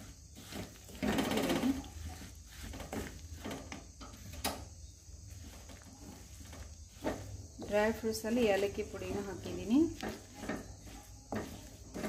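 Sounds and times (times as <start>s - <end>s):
metal spoon scraping pan: 5.4s - 12.0s.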